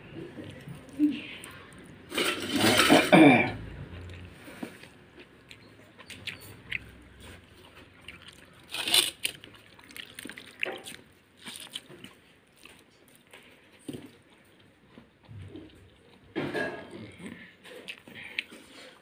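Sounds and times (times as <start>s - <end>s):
hand squishing wet rice: 8.1s - 12.0s.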